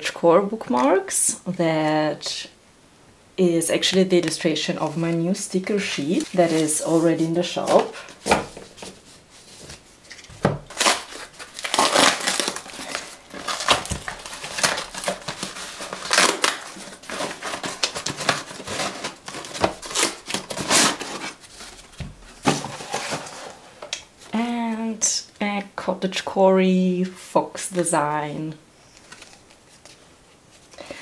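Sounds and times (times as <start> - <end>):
paper rustling: 4.1 - 23.8, 28.9 - 30.8
packing paper crumpled: 4.2 - 23.6.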